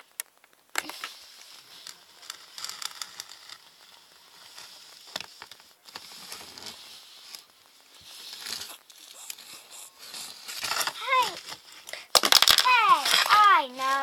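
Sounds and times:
steady hiss: 0.0s - 14.0s
faint rustling: 0.7s - 14.0s
toys clicking and knocking: 8.3s - 14.0s.

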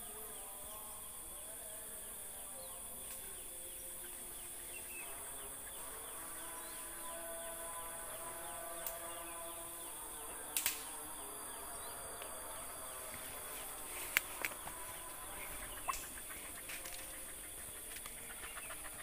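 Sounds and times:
high-pitched insect buzz: 0.0s - 19.0s
sharp snaps of stalks: 3.0s - 3.4s, 8.8s - 9.1s, 10.5s - 11.2s, 13.9s - 14.9s, 15.8s - 18.2s
footsteps rustling through grass: 12.9s - 17.3s.

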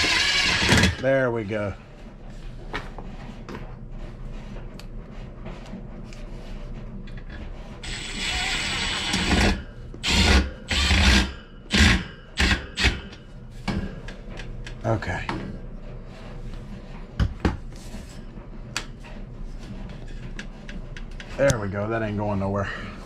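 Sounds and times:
drill driving screws into metal: 0.0s - 1.0s, 7.8s - 13.0s.

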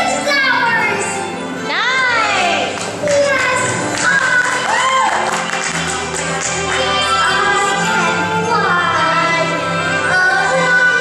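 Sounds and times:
stage musical music: 0.0s - 11.0s.

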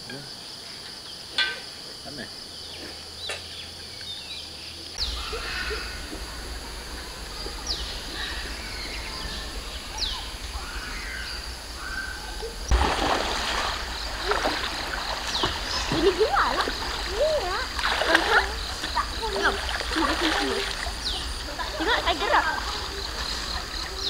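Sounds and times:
steady background hiss: 0.0s - 24.0s
birds whistling calls: 2.6s - 24.0s
flowing water rushing: 5.0s - 24.0s.

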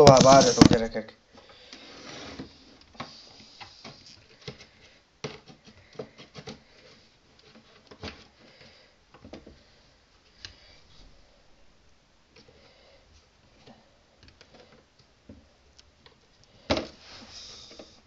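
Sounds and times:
objects clicking and knocking: 0.0s - 0.9s.

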